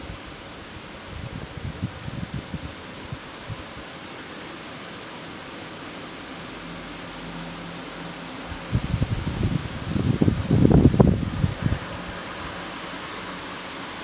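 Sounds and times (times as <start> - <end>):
insect chirring: 0.0 - 14.0
steady hiss: 0.0 - 14.0
low rumbling flutters: 8.6 - 12.9.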